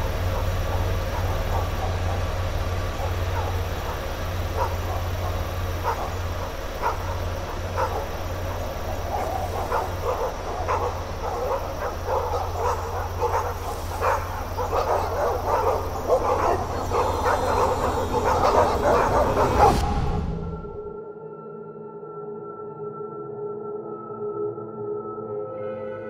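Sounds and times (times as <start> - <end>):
dog barking: 0.0 - 20.2
steady low hum: 0.0 - 20.9.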